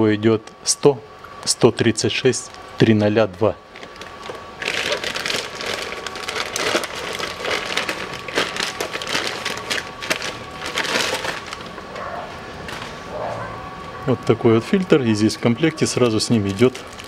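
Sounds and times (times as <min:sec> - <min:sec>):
plastic bag crinkling: 0:03.7 - 0:13.0, 0:15.6 - 0:17.0.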